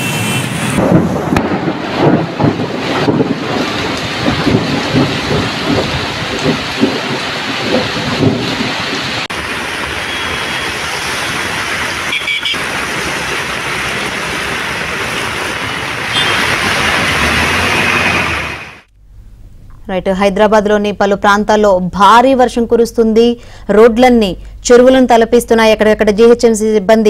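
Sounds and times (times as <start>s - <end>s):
heavy rain falling: 0.5s - 18.9s.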